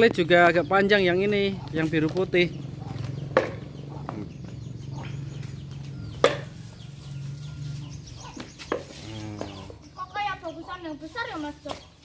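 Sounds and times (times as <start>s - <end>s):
steady low hum: 1.0s - 10.0s
faint chicken clucks: 1.4s - 9.9s.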